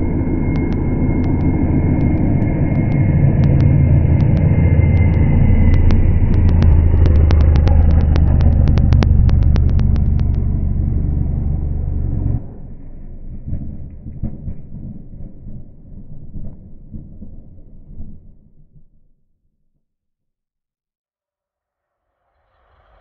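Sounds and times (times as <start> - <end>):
sharp exhaust cracks and crackles: 0.0 - 17.8.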